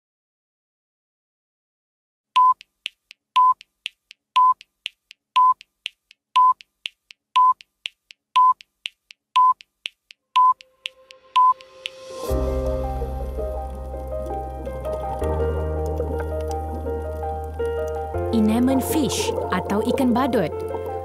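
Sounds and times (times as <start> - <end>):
short high beeps: 10.4 - 10.6, 11.4 - 11.6.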